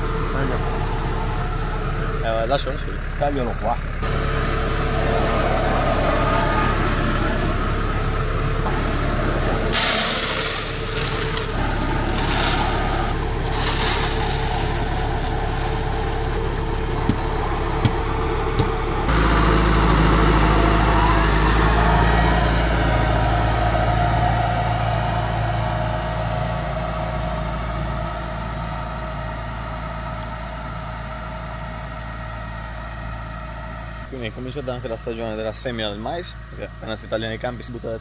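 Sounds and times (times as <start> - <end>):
tractor diesel engine idling: 0.0 - 38.0
seed pouring into plastic hopper: 9.7 - 16.5.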